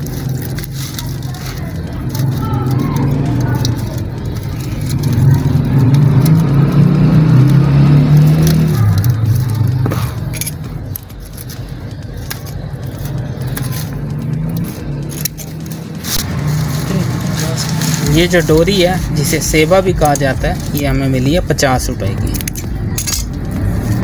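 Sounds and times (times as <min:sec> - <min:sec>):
wire mesh and cord rustling: 0:00.0 - 0:24.0.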